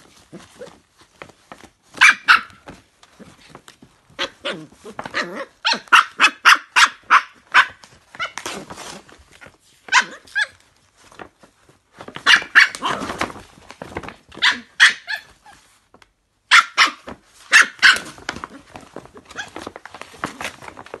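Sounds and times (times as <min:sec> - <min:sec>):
puppy yapping: 0:01.9 - 0:03.3, 0:04.2 - 0:08.5, 0:09.9 - 0:10.6, 0:12.2 - 0:13.2, 0:14.4 - 0:15.6, 0:16.5 - 0:18.6
paper bag tearing: 0:08.1 - 0:09.4, 0:12.0 - 0:14.6.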